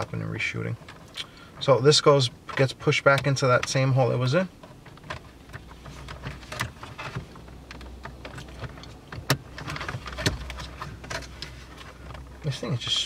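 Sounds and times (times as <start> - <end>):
hard plastic clicking and knocking: 4.6 - 12.4
cables rustling: 4.6 - 13.0.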